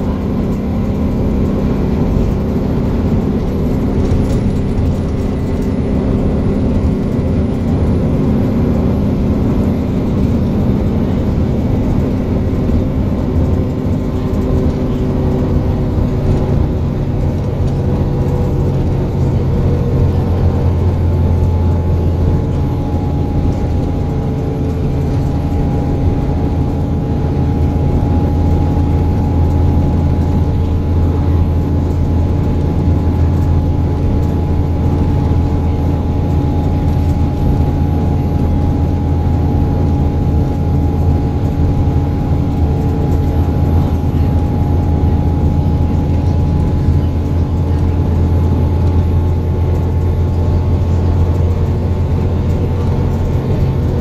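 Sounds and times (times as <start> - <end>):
bus diesel engine drone: 0.0 - 54.0.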